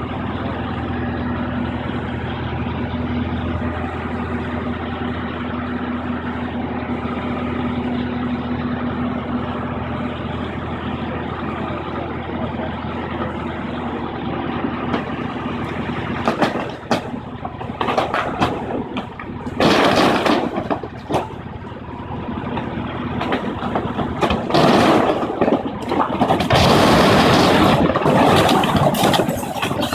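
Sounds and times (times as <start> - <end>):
diesel engine running: 0.0 - 29.9
falling masonry crashing: 16.1 - 21.5, 22.6 - 29.9.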